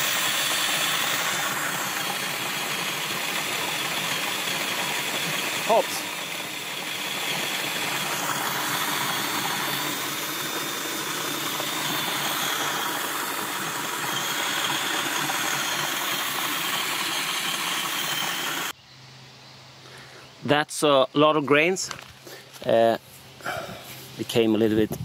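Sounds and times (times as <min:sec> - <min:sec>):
grain mill grinding: 0:00.0 - 0:18.7.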